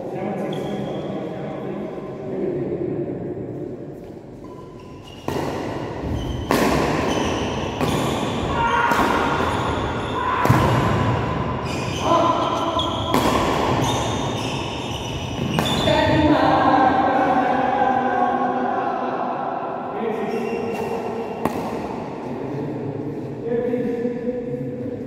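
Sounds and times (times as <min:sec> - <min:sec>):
rackets striking shuttlecock: 0:05.2 - 0:09.6, 0:13.0 - 0:14.0, 0:20.7 - 0:22.1.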